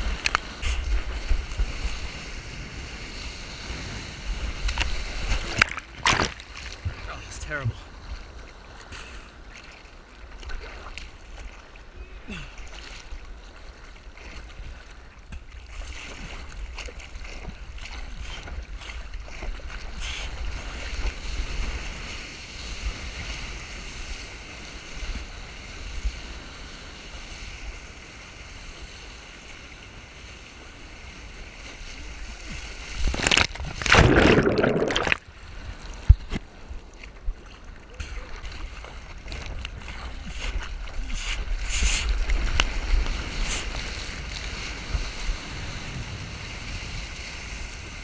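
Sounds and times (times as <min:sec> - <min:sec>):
sea water sloshing and rushing: 0:00.0 - 0:48.0
churning underwater burst: 0:33.1 - 0:35.2.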